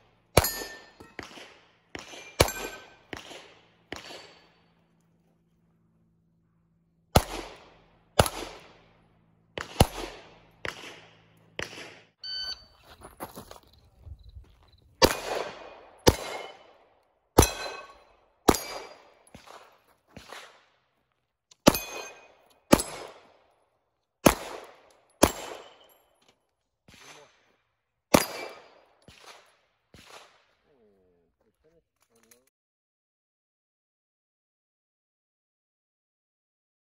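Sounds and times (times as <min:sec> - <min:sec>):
pistol shots: 0:00.1 - 0:04.7, 0:07.1 - 0:12.2, 0:15.0 - 0:20.8, 0:21.6 - 0:23.4, 0:24.2 - 0:26.0, 0:26.9 - 0:27.5, 0:28.1 - 0:30.6
steel plates ringing: 0:00.4 - 0:01.2, 0:02.2 - 0:03.0.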